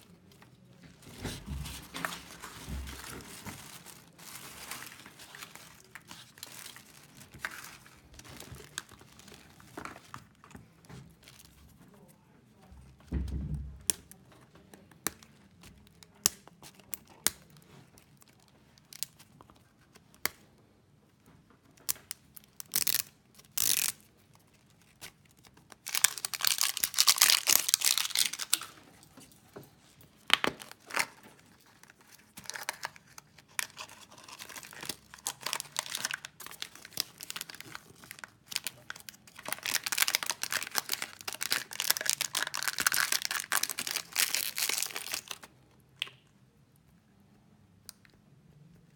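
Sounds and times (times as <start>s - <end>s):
plastic wrapper tearing: 0.0s - 11.7s, 15.0s - 20.4s, 21.8s - 28.8s, 30.2s - 45.5s
foil crinkling: 0.9s - 11.8s, 22.0s - 28.8s, 30.2s - 45.5s.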